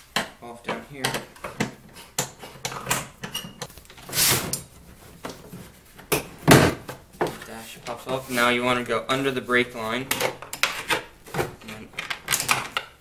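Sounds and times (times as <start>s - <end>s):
rustling scrape: 3.7s - 6.0s, 7.3s - 8.6s.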